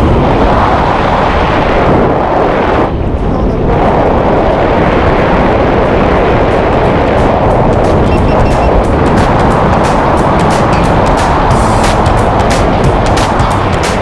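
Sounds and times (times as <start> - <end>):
wind rushing over microphone: 0.0 - 14.0.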